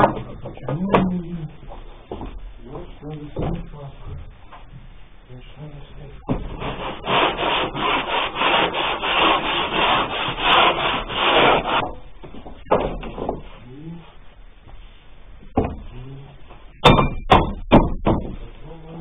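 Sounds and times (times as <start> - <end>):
sharp knocks: 0.0 - 1.3, 6.2 - 6.9, 9.8 - 13.5, 15.5 - 15.9, 16.8 - 18.5
rhythmic scraping rub: 6.4 - 12.0.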